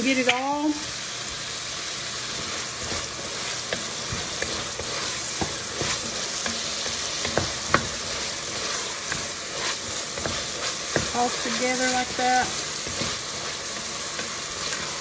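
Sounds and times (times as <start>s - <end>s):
vegetables sizzling in a pot: 0.0s - 15.0s
spoon clicking and scraping pot: 3.6s - 11.2s.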